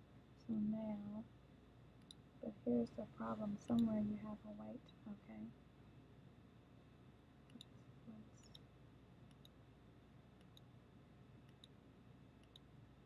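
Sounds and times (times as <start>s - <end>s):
computer mouse clicks: 3.7s - 4.0s, 9.3s - 9.6s, 10.4s - 10.7s, 11.4s - 11.8s, 12.4s - 12.7s.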